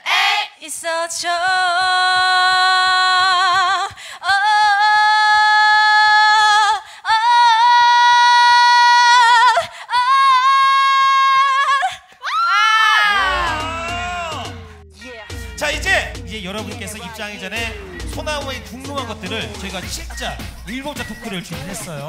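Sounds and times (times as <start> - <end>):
woman singing with vibrato: 0.0 - 12.1, 13.0 - 15.5.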